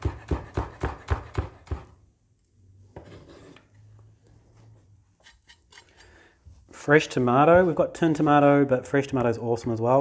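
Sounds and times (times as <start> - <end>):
knife chopping on wooden board: 0.0 - 2.0.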